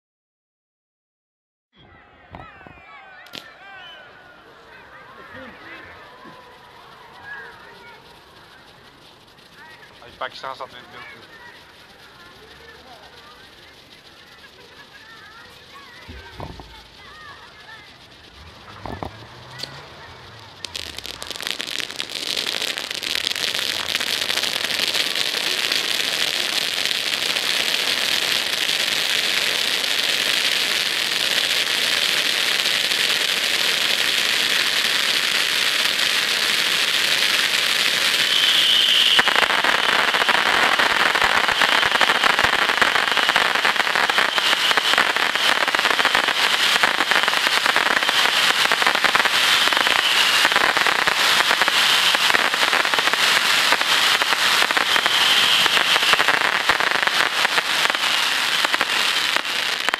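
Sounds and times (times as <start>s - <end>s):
faint high whistle: 1.8s - 4.3s, 38.0s - 39.5s
fireworks crackling: 2.3s - 59.9s
firework fountains hissing: 2.4s - 59.9s.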